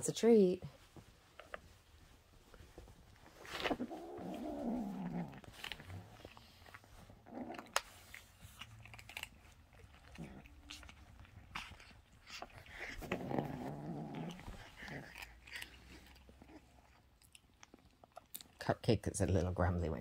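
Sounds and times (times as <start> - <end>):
kittens chewing crunchy treats: 2.6 - 18.7
kitten grumbling low: 12.9 - 15.2.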